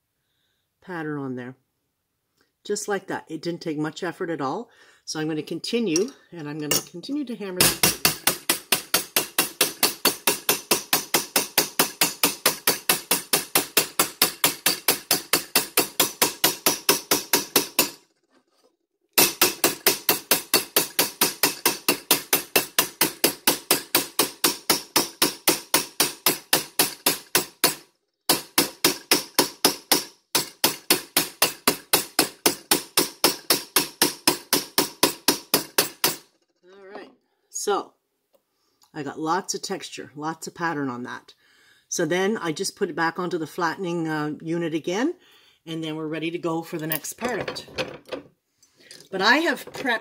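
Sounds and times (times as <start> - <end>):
hammer tapping on metal: 7.6 - 18.0, 19.2 - 36.3.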